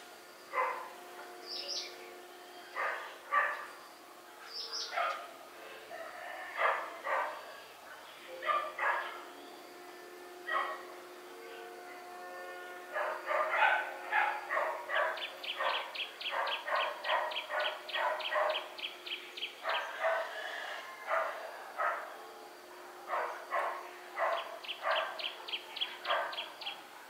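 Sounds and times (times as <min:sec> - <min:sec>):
dog barking: 0:00.6 - 0:00.9, 0:02.8 - 0:03.7, 0:04.9 - 0:05.3, 0:06.6 - 0:07.4, 0:08.4 - 0:09.2, 0:10.5 - 0:10.8, 0:13.0 - 0:18.7, 0:19.6 - 0:20.4, 0:21.1 - 0:22.1, 0:23.1 - 0:26.8.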